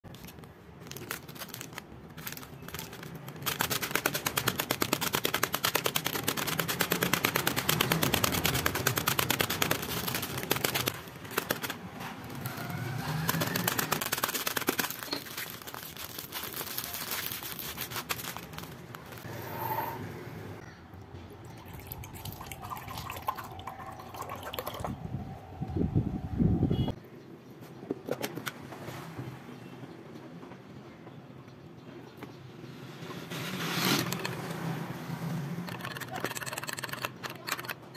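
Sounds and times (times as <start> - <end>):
stick pounding biscuit packet: 2.7 - 11.8, 13.2 - 16.6.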